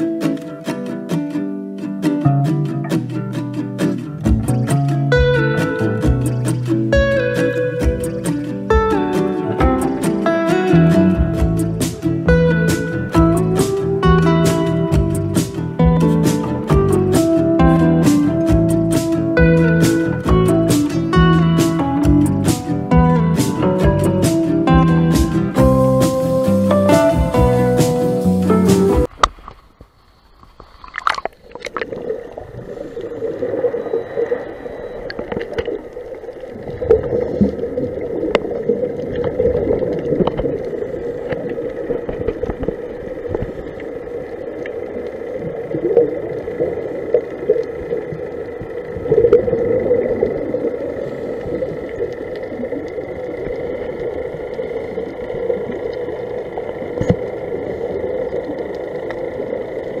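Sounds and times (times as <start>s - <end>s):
underwater hum: 2.8s - 60.0s
scuba exhaust bubbles: 30.8s - 60.0s.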